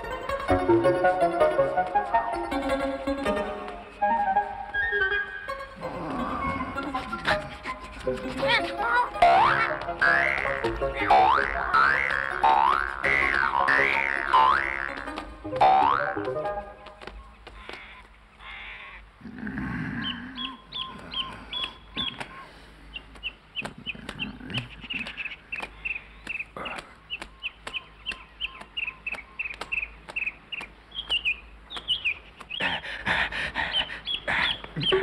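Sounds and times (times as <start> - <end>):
small bird chirping: 19.9 - 32.8, 33.7 - 35.0.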